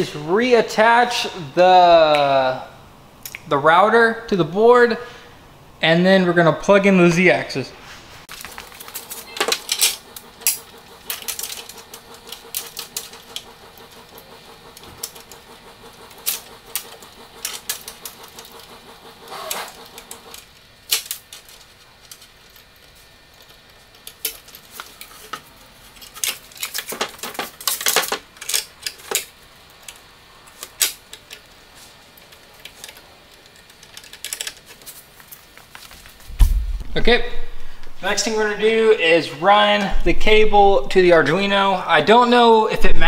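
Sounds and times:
clicks and knocks of handling: 20.1s - 31.5s, 32.2s - 36.2s.

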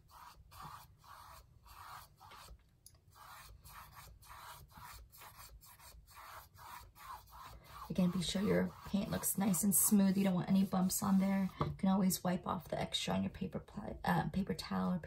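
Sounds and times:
paintbrush stroking canvas: 0.0s - 11.6s.

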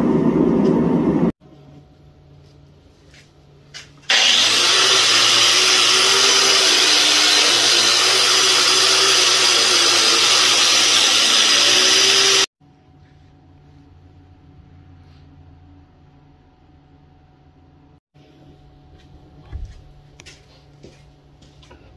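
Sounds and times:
angle grinder on steel: 4.1s - 12.5s.

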